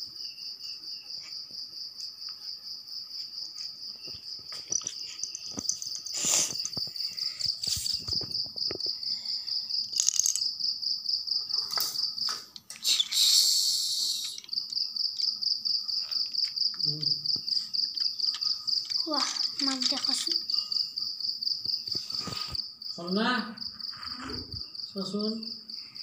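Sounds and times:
cricket chirping: 0.0s - 26.0s
rustling: 3.2s - 8.5s
toy train clicking on track: 12.7s - 15.3s, 17.7s - 20.6s.

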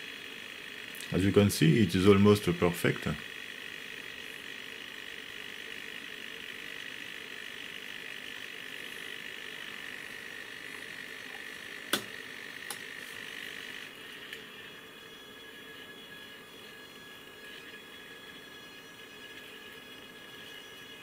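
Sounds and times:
electronic whine and hum: 0.0s - 21.0s.

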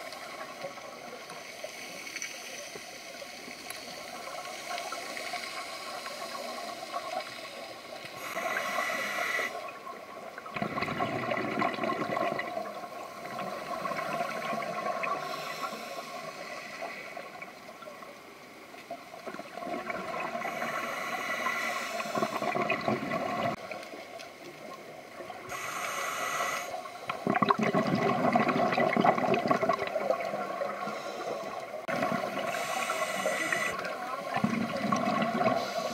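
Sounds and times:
diver inhaling through regulator: 8.2s - 9.7s, 15.0s - 17.3s, 20.4s - 22.8s, 25.5s - 26.9s, 30.8s - 33.9s, 35.4s - 35.9s
exhaled bubbles rushing: 10.4s - 15.2s, 19.3s - 20.6s, 22.2s - 23.6s, 27.1s - 30.9s, 31.8s - 32.5s, 33.7s - 35.9s.

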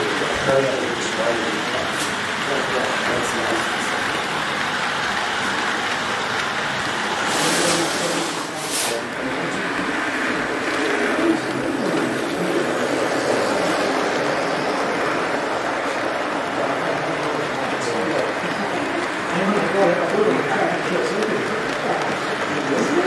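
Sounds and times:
model train rolling rumble: 0.0s - 23.0s
brief hisses: 7.2s - 9.1s.

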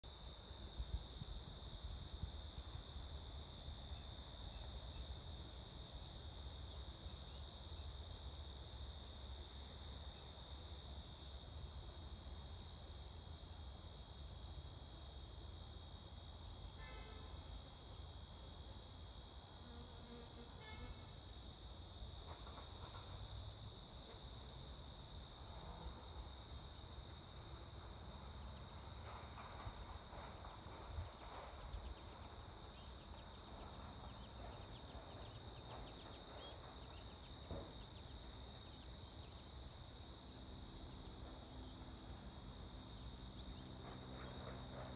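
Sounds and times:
insects trilling: 30.6s - 44.9s.

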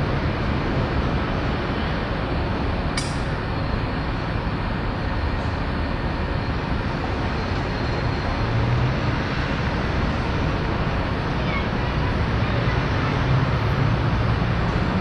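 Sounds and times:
railway yard rumble: 0.0s - 15.0s
sharp click: 3.0s - 3.4s.

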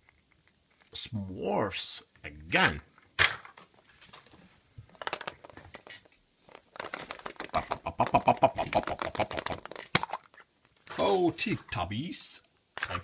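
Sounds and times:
plastic egg clicking and rattling: 0.0s - 1.0s, 4.2s - 10.9s, 12.8s - 13.0s.

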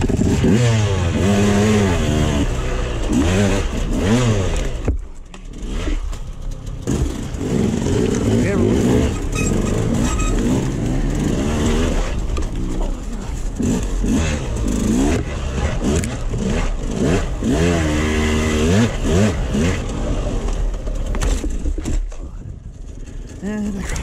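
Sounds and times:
dirt bike engine revving: 0.0s - 21.2s
knocks from the trail: 19.7s - 23.2s.

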